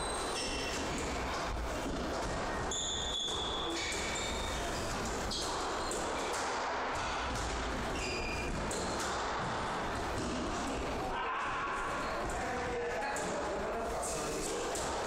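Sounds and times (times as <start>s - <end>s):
squash ball struck and hitting walls: 0.3s - 11.1s.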